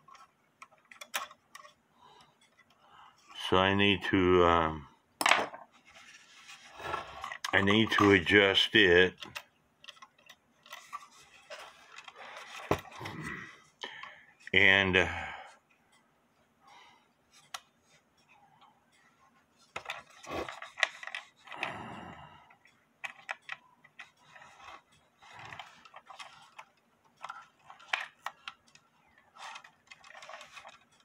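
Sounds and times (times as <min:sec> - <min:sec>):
clock mechanism clicks and scrapes: 0:22.6 - 0:31.0.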